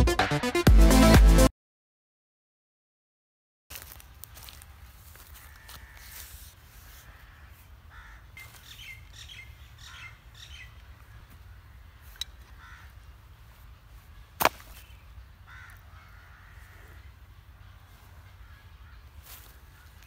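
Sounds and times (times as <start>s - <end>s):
birds calling: 4.3s - 20.0s.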